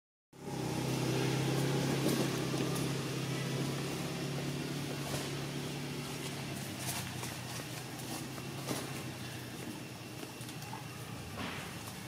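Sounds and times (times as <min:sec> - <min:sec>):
engine humming: 0:00.4 - 0:12.0.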